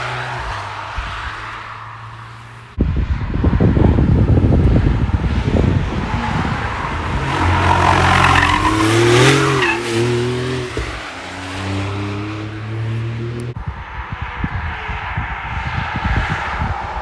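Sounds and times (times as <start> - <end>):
car engine passing by: 0.0 - 13.6
tyre and road noise: 0.0 - 17.0
wind buffeting microphone: 2.7 - 11.2, 13.5 - 17.0.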